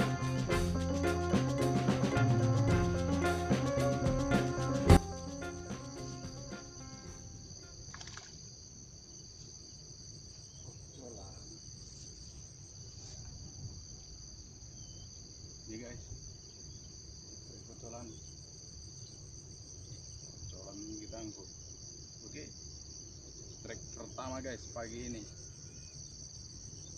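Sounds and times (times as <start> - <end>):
high-pitched insect drone: 0.0 - 8.3.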